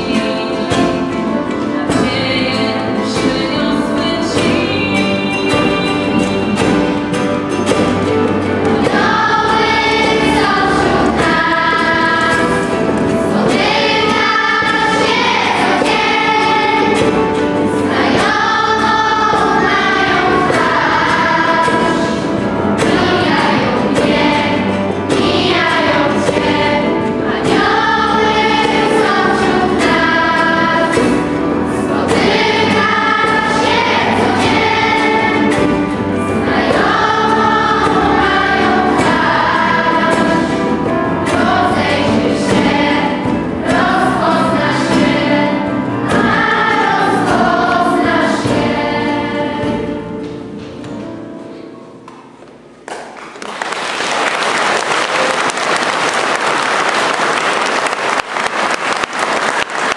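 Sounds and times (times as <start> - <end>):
children's choir singing a hymn: 0.0 - 59.9
audience applause: 52.8 - 59.9.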